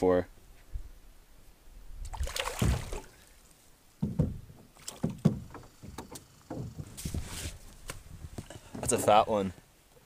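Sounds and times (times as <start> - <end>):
thumps against canoe hull: 4.0 - 9.2.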